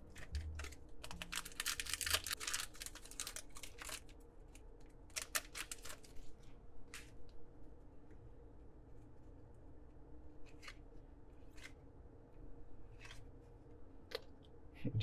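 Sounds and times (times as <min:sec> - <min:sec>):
foil wrapper tearing and crinkling: 0:00.1 - 0:04.2, 0:05.1 - 0:06.2.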